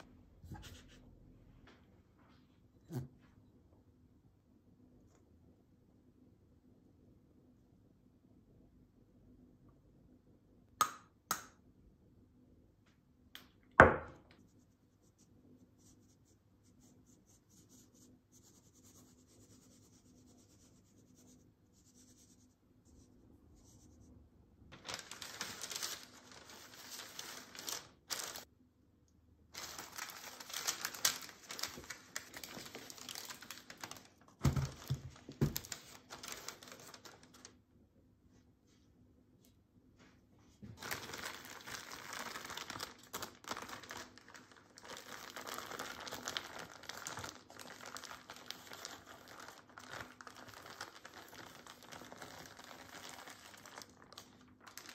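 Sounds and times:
paper crinkling and rustling: 0:24.7 - 0:28.5, 0:29.6 - 0:37.6, 0:40.7 - 0:54.9.

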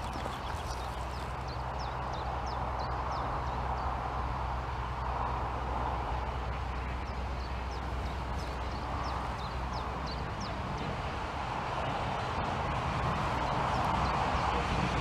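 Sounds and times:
small bird chirping: 0:00.0 - 0:03.3.

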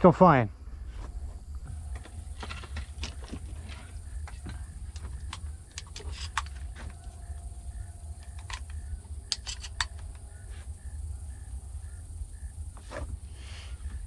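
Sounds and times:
shotgun metallic clicks and rattles: 0:01.9 - 0:06.7, 0:07.7 - 0:10.2.

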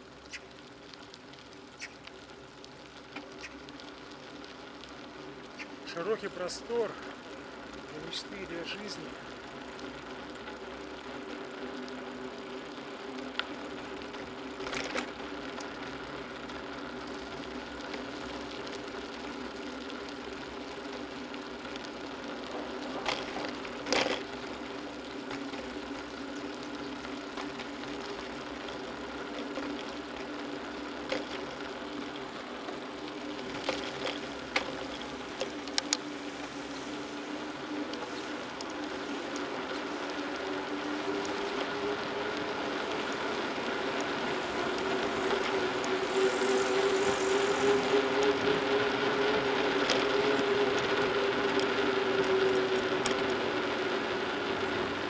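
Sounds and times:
bicycle whirring on asphalt: 0:00.0 - 0:55.0.

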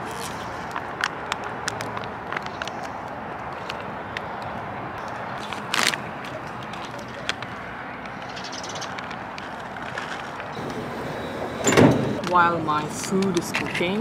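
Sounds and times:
plastic pouch ripping: 0:00.0 - 0:02.0, 0:05.4 - 0:07.4
plastic crinkling: 0:05.0 - 0:07.6, 0:08.9 - 0:10.5.

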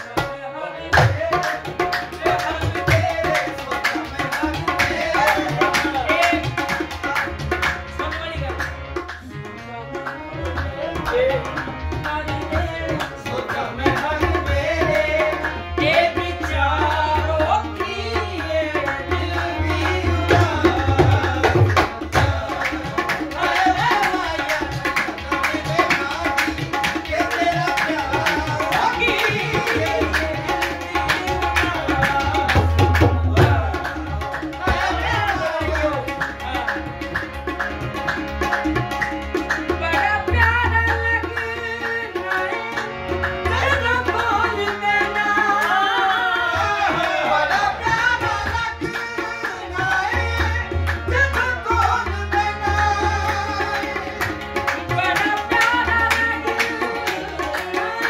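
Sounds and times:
harmonium: 0:00.0 - 0:58.0
man singing: 0:00.0 - 0:58.0
tabla and dholak drumming: 0:00.0 - 0:58.0.

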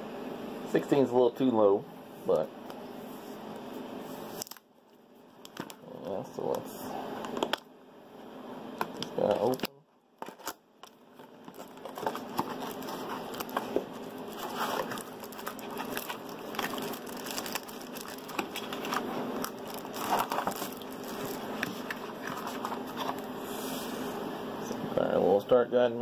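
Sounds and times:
plastic wrapping rustling: 0:10.2 - 0:23.3
cardboard box being handled: 0:11.4 - 0:19.1.

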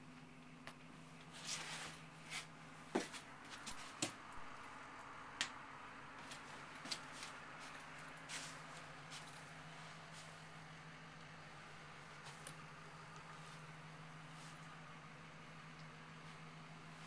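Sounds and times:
low steady hum: 0:00.0 - 0:17.0
soft rustles: 0:01.1 - 0:04.1, 0:06.2 - 0:11.2, 0:12.1 - 0:14.8.

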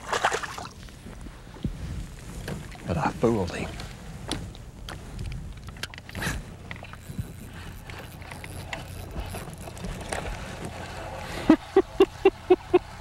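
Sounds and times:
fishing reel clicking: 0:06.8 - 0:09.9.

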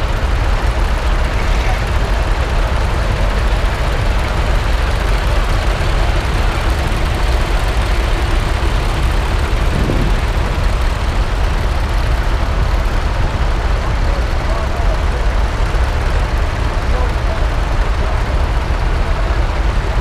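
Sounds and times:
tractor engines rumbling: 0:00.0 - 0:20.0.

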